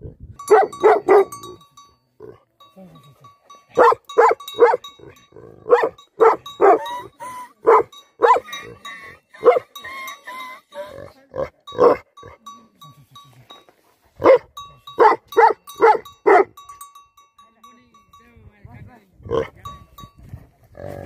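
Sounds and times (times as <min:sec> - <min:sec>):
dog barking: 0:00.5 - 0:01.5, 0:03.8 - 0:06.9, 0:07.6 - 0:08.5, 0:09.4 - 0:09.8, 0:11.8 - 0:12.1, 0:14.2 - 0:16.6.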